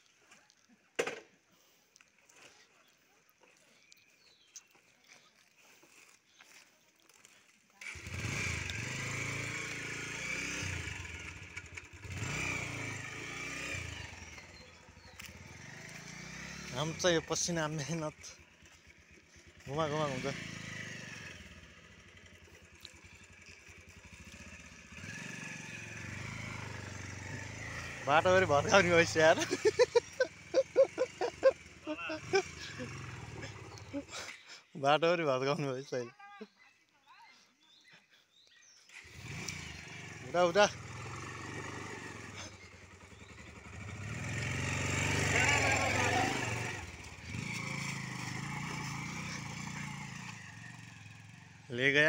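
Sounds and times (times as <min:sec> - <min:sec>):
motorcycle engine idling: 0:10.7 - 0:13.2, 0:13.8 - 0:34.2, 0:38.9 - 0:52.0.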